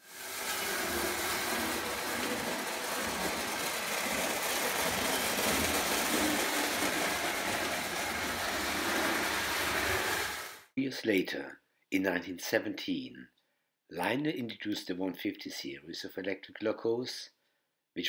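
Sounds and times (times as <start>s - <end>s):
toy train rumbling on track: 0.0s - 10.7s.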